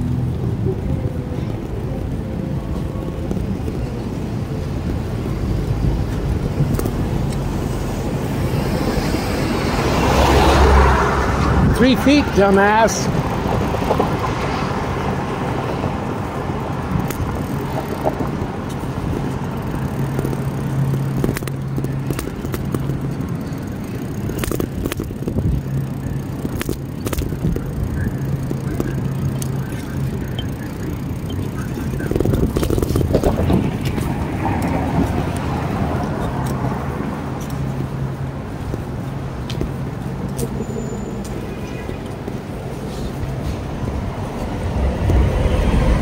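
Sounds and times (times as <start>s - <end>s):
passing cars rumbling: 0.0s - 46.0s
scattered clicks: 16.8s - 40.6s.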